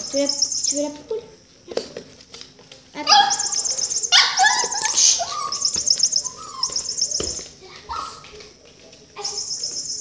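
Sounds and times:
high warbling chirps: 0.0s - 1.0s, 3.1s - 7.5s
small dog yipping and barking: 3.1s - 7.2s.

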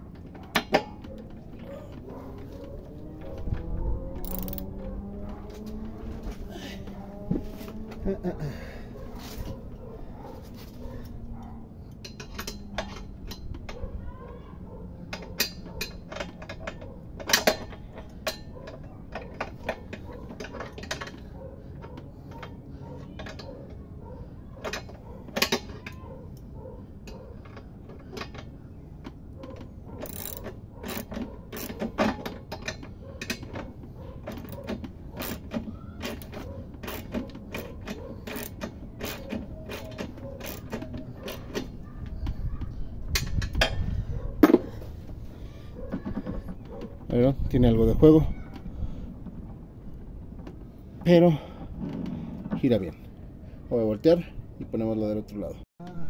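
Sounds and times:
ratchet wrench clicking: 4.2s - 4.8s, 30.0s - 31.8s, 36.9s - 41.5s
tool clacking against metal: 15.1s - 21.3s, 29.1s - 41.8s.

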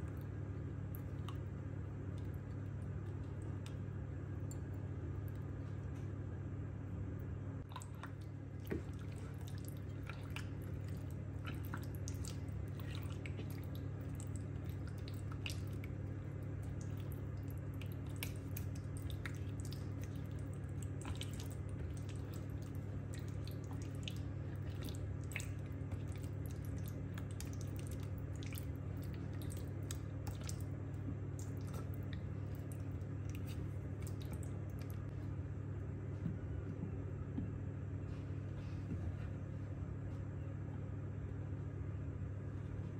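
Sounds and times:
steady low hum: 0.0s - 42.9s
chicken squishing in marinade: 7.7s - 35.1s.

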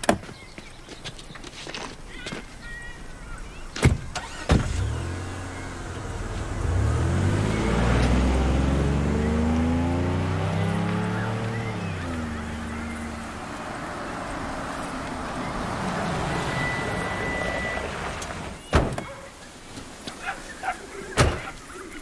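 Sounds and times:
car doors shutting: 3.8s - 19.2s
minivan engine accelerating: 4.1s - 18.7s.

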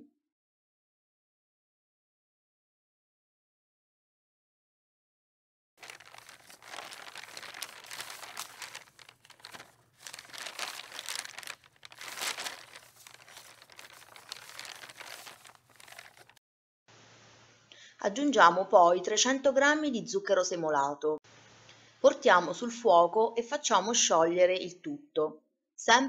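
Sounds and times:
wrapper crinkling: 5.8s - 16.4s.

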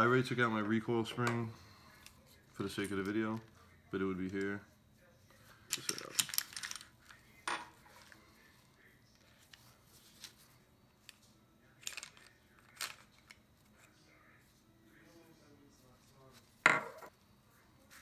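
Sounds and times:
pistol parts clicking: 5.7s - 6.9s.

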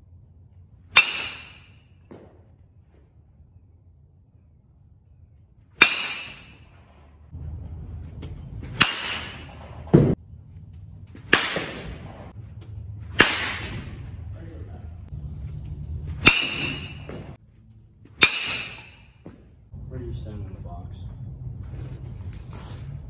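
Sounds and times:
baseball bat cracking balls: 0.9s - 2.6s, 5.8s - 7.0s, 8.2s - 10.2s, 11.0s - 14.1s, 16.0s - 17.4s, 18.0s - 19.6s.

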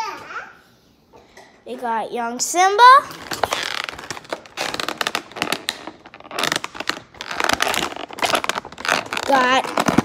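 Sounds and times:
plastic packaging crinkling: 3.1s - 10.0s.

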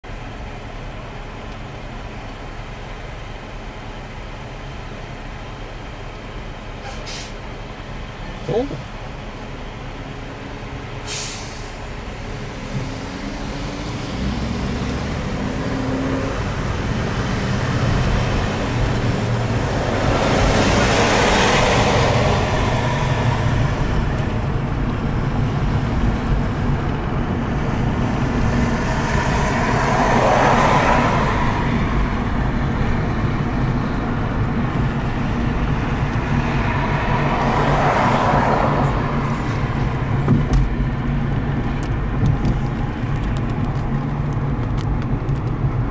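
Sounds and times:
car engine and road rumble: 0.0s - 45.9s
passing traffic: 0.0s - 45.9s.

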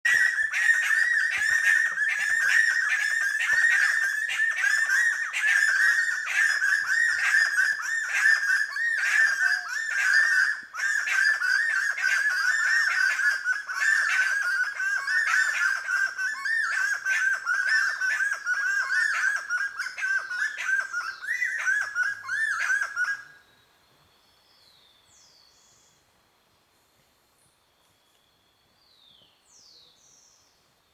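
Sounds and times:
wood-quails singing: 0.0s - 23.5s.

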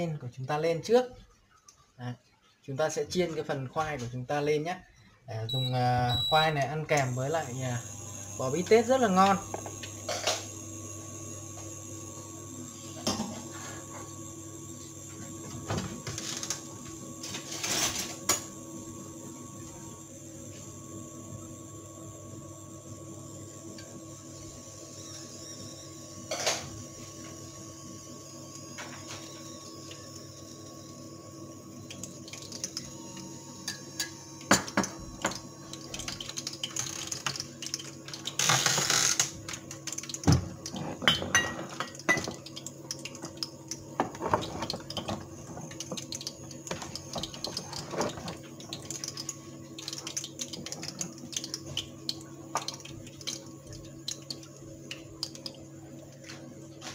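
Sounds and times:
cooktop hum: 0.0s - 56.9s
oil popping and crackling: 31.8s - 33.0s, 34.4s - 56.3s.

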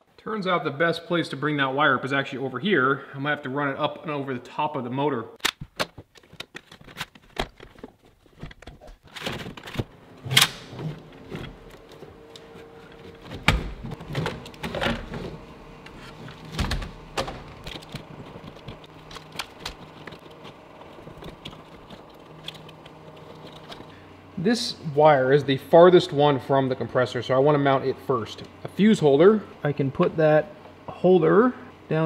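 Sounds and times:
wiring harness clicks and rubbing: 5.4s - 15.0s, 15.8s - 23.9s.

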